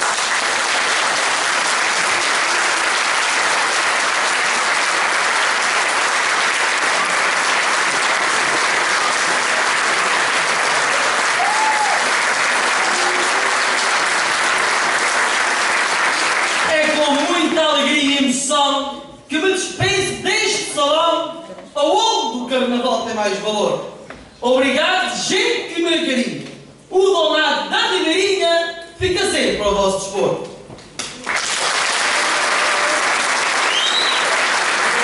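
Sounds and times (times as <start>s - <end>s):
audience applauding: 0.0s - 17.4s, 31.1s - 35.0s.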